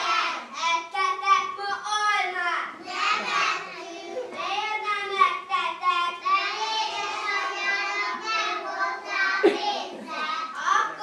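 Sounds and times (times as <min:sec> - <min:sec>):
children singing: 0:00.0 - 0:00.5, 0:02.8 - 0:04.4, 0:05.6 - 0:10.6.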